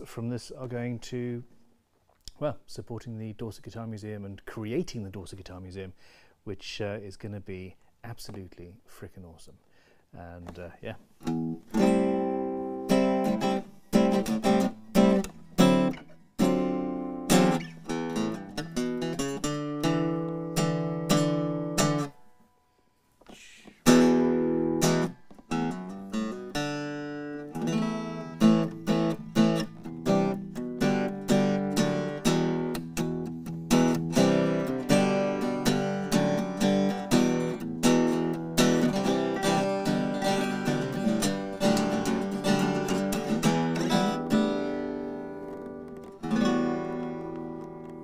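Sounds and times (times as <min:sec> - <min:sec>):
acoustic guitar chords ringing: 0:11.2 - 0:22.7, 0:23.8 - 0:48.0.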